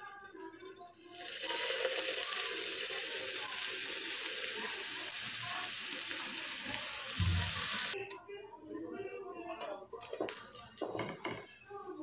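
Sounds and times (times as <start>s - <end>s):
batter sizzling in a hot pan: 0.8s - 8.0s.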